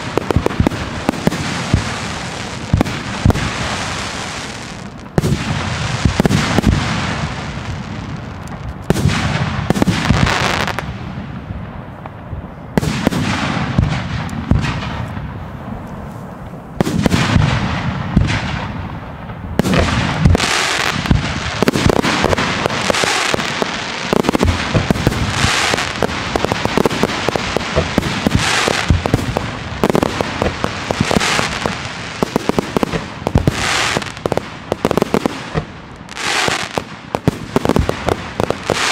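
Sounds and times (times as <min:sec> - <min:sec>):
dense rapid firework crackling: 0:00.0 - 0:12.2, 0:12.8 - 0:38.9
fireworks bursting with loud bangs: 0:00.0 - 0:38.9.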